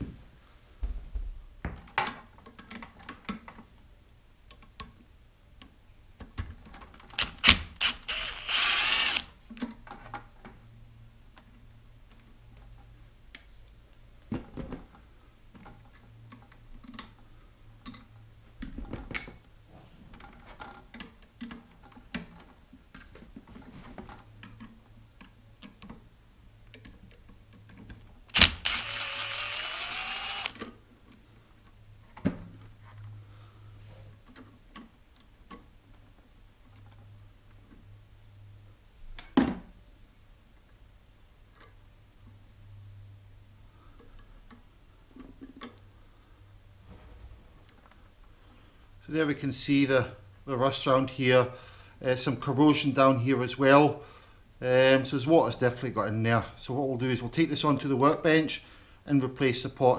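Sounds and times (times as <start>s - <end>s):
screwdriver clicks and taps: 28.4s - 30.7s.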